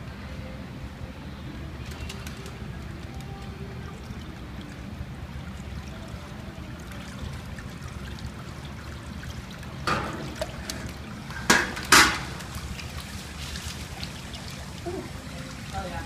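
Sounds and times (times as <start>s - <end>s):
water sloshing and trickling: 0.9s - 16.0s
water splashes: 1.7s - 16.0s.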